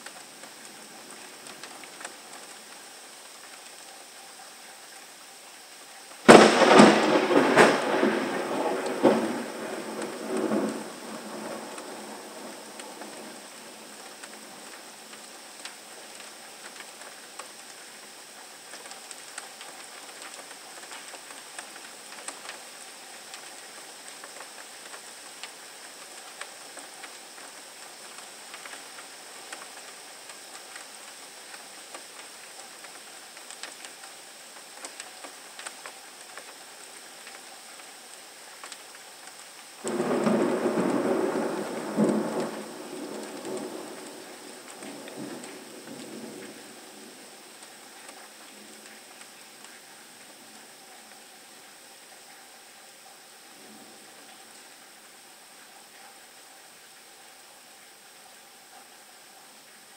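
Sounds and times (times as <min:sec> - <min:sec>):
steady rain: 0:00.0 - 0:59.9
ticks of raindrops: 0:00.0 - 0:59.9
thunder rumble: 0:06.3 - 0:14.4, 0:39.8 - 0:47.6.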